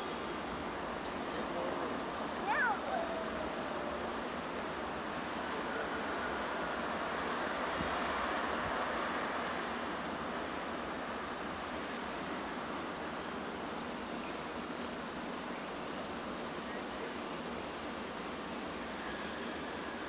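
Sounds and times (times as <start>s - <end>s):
insects trilling: 0.0s - 20.0s
street background noise: 0.0s - 20.0s.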